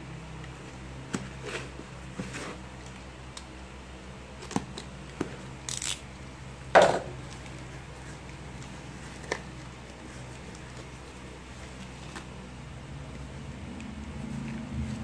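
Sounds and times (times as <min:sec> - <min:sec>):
blade slitting packing tape: 0:05.6 - 0:06.0.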